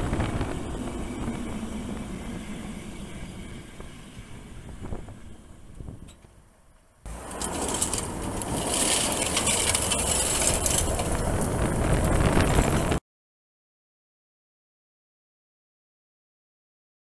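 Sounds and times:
tyres sliding on gravel: 7.1 - 13.0.

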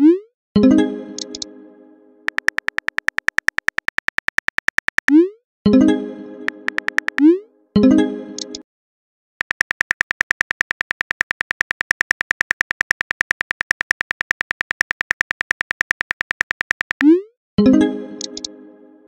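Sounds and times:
phone keyboard clicks: 1.2 - 1.4, 2.3 - 5.2, 6.5 - 7.2, 9.4 - 17.1, 18.2 - 18.5.

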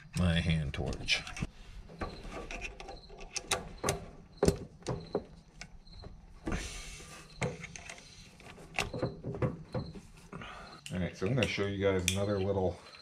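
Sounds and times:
brass fittings clicking and knocking: 0.9 - 10.3.

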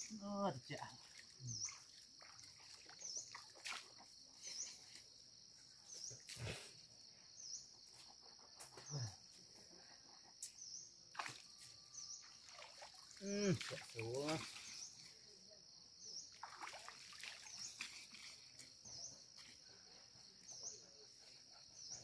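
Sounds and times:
short insect chirp: 0.0 - 22.0
water sloshing: 16.3 - 18.5.

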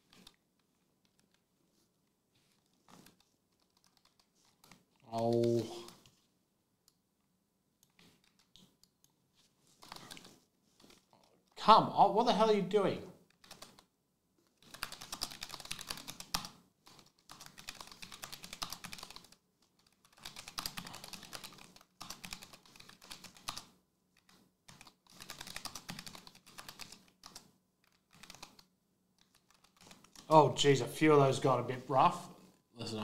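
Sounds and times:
computer keyboard typing: 2.9 - 6.2, 7.8 - 8.8, 9.8 - 11.1, 13.3 - 13.9, 14.6 - 30.3.

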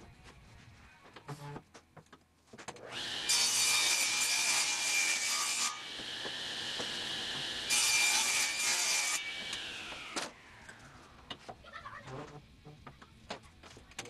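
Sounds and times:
table saw cutting plywood: 2.8 - 10.4.

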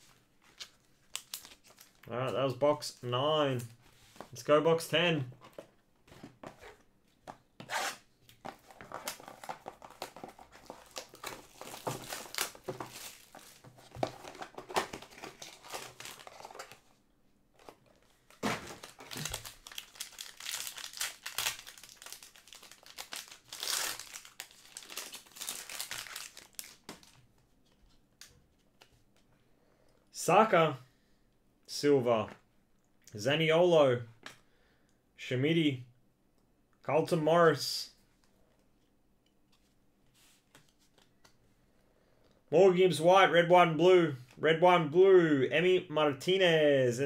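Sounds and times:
plastic wrap crinkling and tearing: 0.5 - 2.1, 8.7 - 16.9, 18.3 - 27.2
cardboard box opened cards handled: 8.3 - 16.9.

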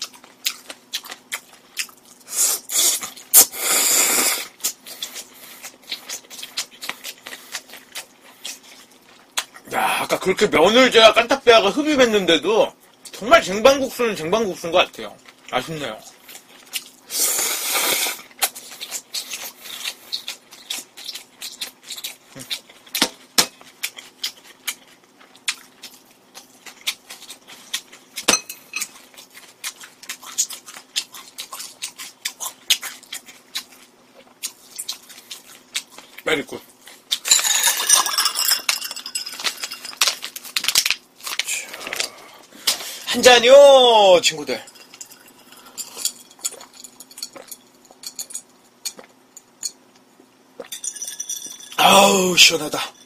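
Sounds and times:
faint steady hum: 0.0 - 53.0
chopsticks clinking on dish: 37.3 - 40.2, 44.5 - 49.8.

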